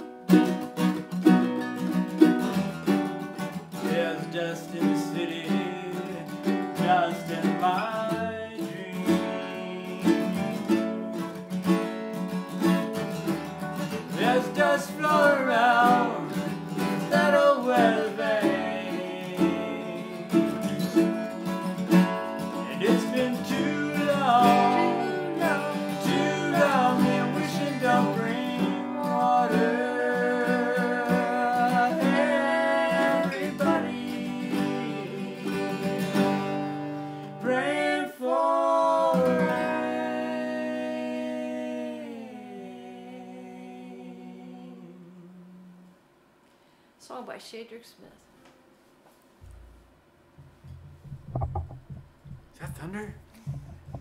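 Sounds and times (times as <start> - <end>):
acoustic guitar strumming: 0.0 - 37.5, 50.4 - 54.0
ukulele: 0.0 - 43.3, 50.6 - 54.0
person singing: 3.8 - 11.3, 14.1 - 21.4, 22.4 - 36.7, 37.4 - 45.9.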